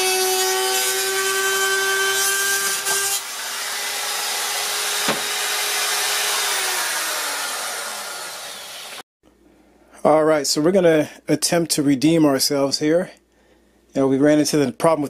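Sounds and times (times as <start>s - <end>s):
spiral saw motor whining: 3.1s - 9.0s.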